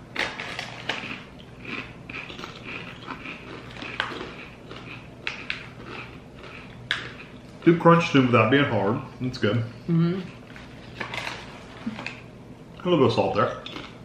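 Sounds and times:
potato chips crunching: 0.1s - 7.8s, 10.7s - 12.2s, 12.8s - 14.0s
chewing: 0.2s - 7.7s, 13.6s - 14.0s.

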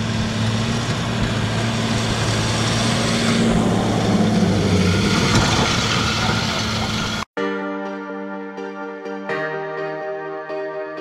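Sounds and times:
tractor engine under load: 0.0s - 7.3s.

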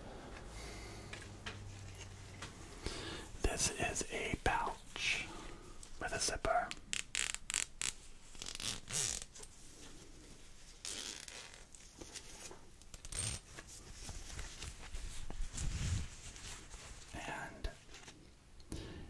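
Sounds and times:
zipper rasping: 7.1s - 9.3s, 10.8s - 11.7s
cloth handling: 7.5s - 17.2s.

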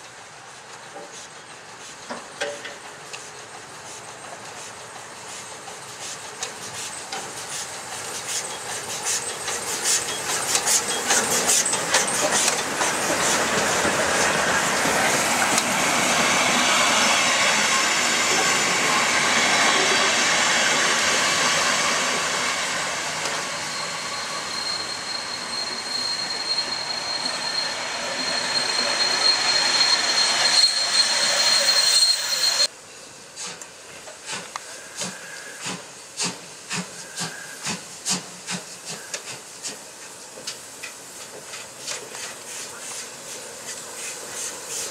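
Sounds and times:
steam locomotive exhaust beats: 0.0s - 32.7s, 33.4s - 44.9s
steam hiss: 0.0s - 44.9s
high wheel squeal: 8.2s - 32.7s.

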